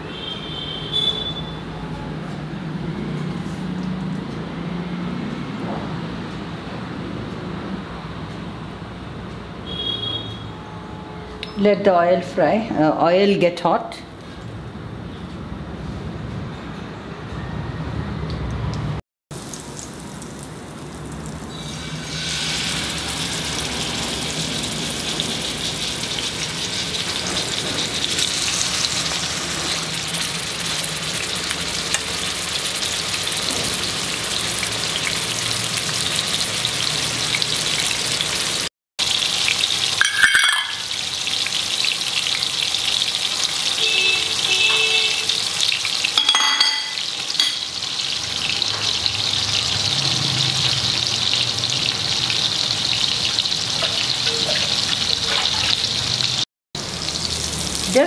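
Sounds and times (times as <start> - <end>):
fish sizzling in oil: 19.3 - 58.0.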